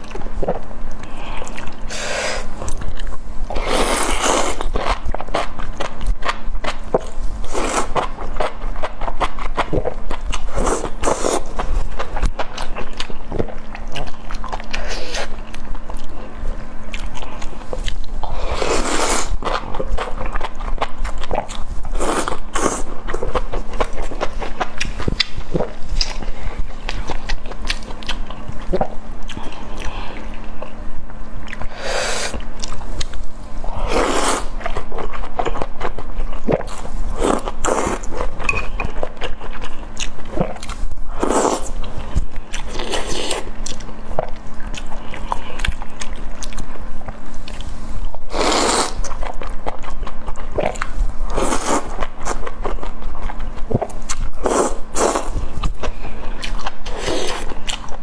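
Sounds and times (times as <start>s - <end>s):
wet chewing: 0.0s - 30.8s, 32.3s - 58.0s
loud slurping: 31.7s - 32.4s, 48.3s - 49.0s.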